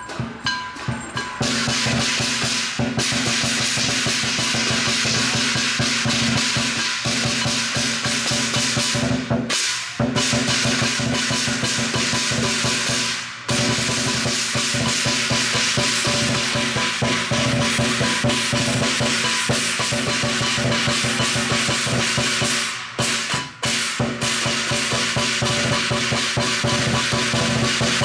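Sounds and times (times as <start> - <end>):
crashing cymbals: 0.0 - 28.0
gong: 0.0 - 28.0
large drum beaten fast: 0.0 - 28.0.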